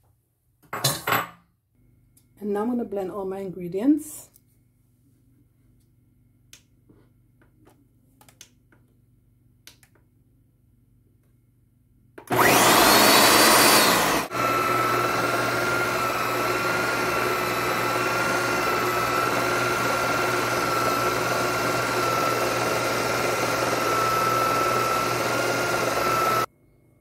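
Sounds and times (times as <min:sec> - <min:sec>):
blender whining: 0:12.2 - 0:26.5.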